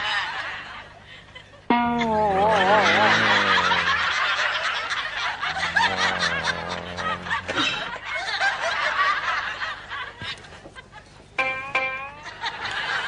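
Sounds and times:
audience laughing: 0.0 - 11.2, 12.1 - 13.0
low musical tone: 1.7 - 4.1, 11.4 - 12.7.

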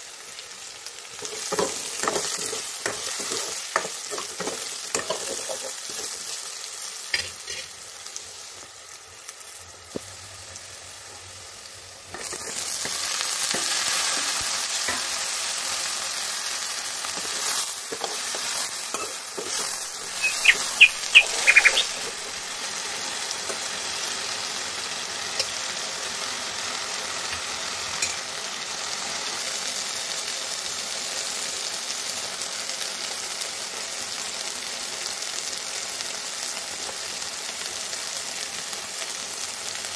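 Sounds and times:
potatoes sizzling in oil: 0.0 - 39.9
metal spoon clinking on pan: 18.9 - 20.8.

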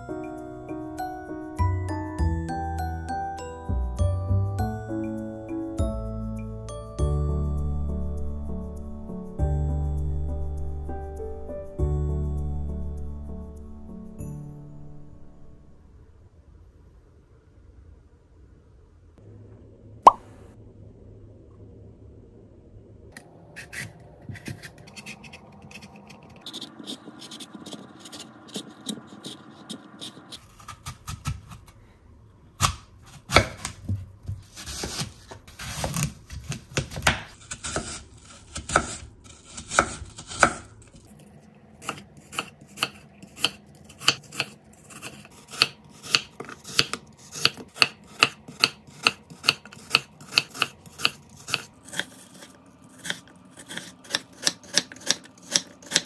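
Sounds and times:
knife cutting apple: 23.6 - 31.8, 32.6 - 56.0.

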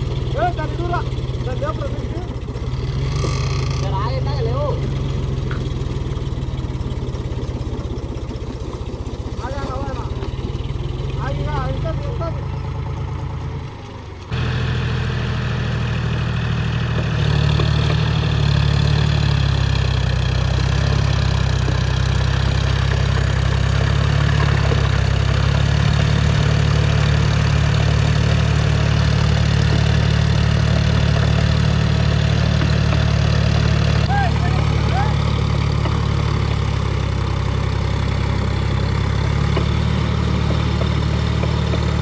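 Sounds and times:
tractor diesel engine running: 0.0 - 42.0.

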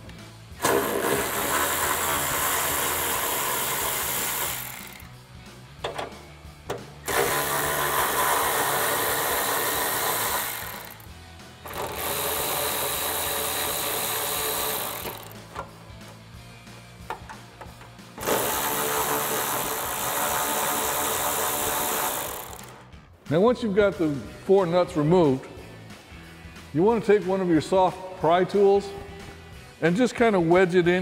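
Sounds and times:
cordless power ratchet running: 0.6 - 5.2, 7.0 - 15.7, 18.2 - 22.8.

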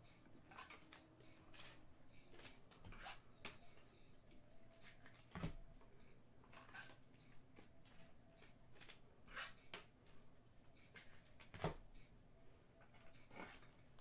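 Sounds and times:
trading cards sliding: 0.4 - 3.8, 6.5 - 10.2.

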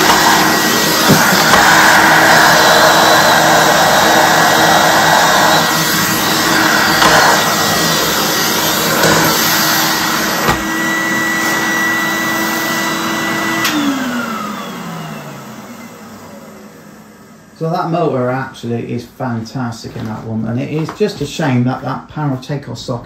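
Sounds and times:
vacuum cleaner motor whine: 0.0 - 18.1.

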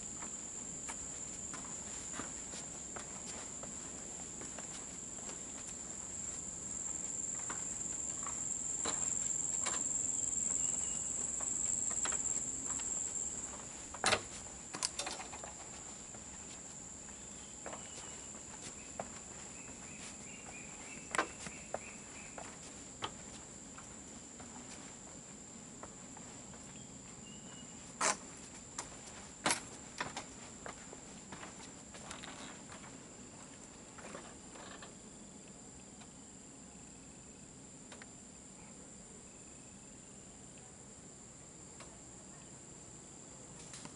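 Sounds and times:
high-pitched insect drone: 0.0 - 25.0
footsteps on a boardwalk: 0.0 - 34.8.

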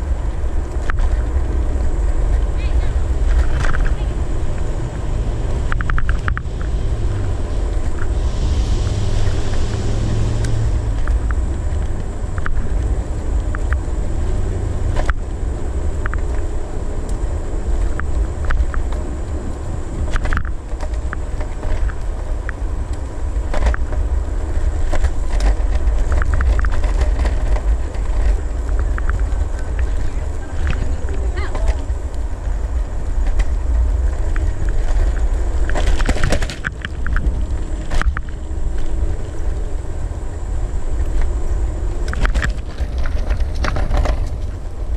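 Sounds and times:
road rumble: 0.0 - 44.9
wind rushing over microphone: 0.0 - 44.9
clicks and rattles from bumps: 3.2 - 4.0, 20.0 - 39.6, 42.0 - 44.9.

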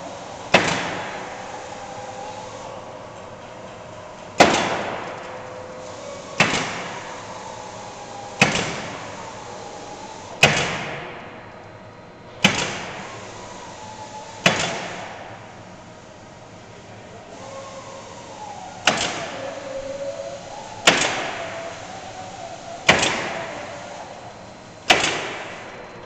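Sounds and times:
pneumatic nailer firing nails: 0.3 - 1.8, 4.4 - 5.2, 5.8 - 9.0, 10.4 - 11.2, 12.4 - 15.3, 18.2 - 19.6, 20.5 - 24.0, 24.8 - 25.8.

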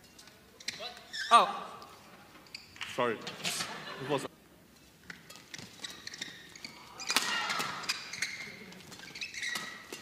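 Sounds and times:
shoes squeaking on court: 2.4 - 2.9, 5.0 - 10.0
rackets striking shuttlecock: 7.0 - 8.1.

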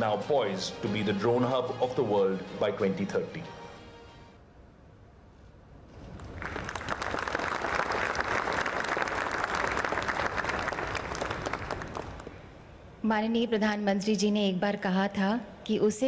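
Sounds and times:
audience applauding: 6.1 - 12.3.

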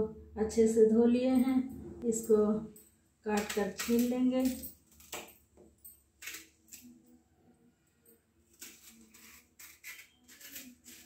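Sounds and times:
knife scraping banana peel: 6.2 - 7.0, 8.5 - 11.0.

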